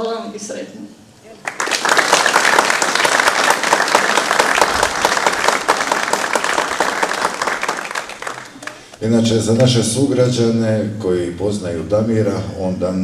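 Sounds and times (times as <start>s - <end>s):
audience applauding: 1.4s - 9.0s.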